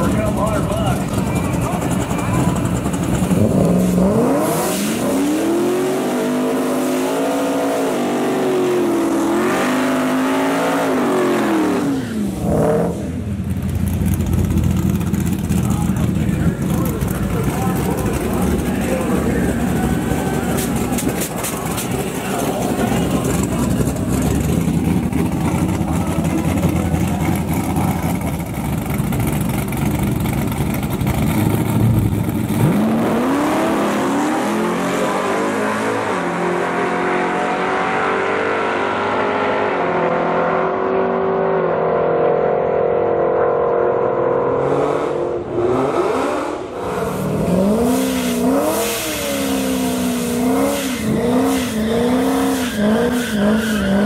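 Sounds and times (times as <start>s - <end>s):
drag racing car engines: 0.0s - 54.0s
engine revving: 0.0s - 54.0s.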